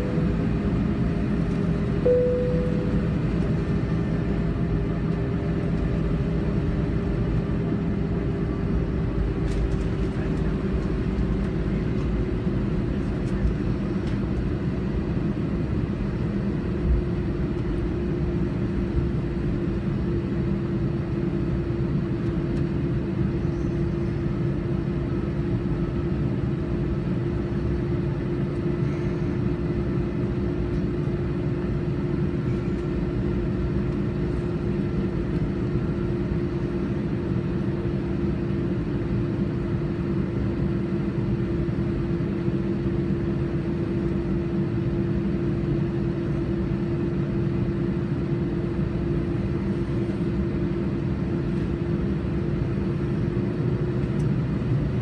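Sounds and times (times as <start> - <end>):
airliner engine hum and whine: 0.0 - 55.0
short tone: 2.0 - 3.4.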